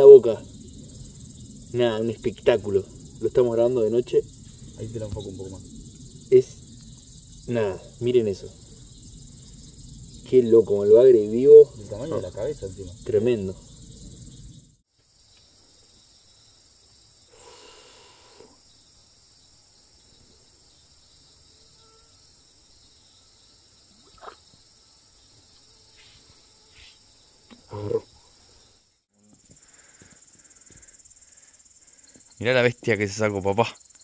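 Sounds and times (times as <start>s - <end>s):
crickets and insects trilling: 0.0s - 34.0s.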